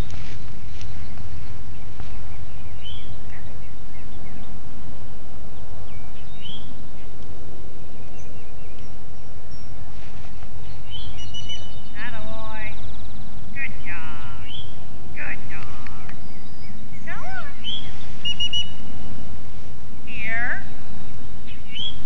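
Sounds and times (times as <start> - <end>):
short bird chirps: 16.1 - 19.1.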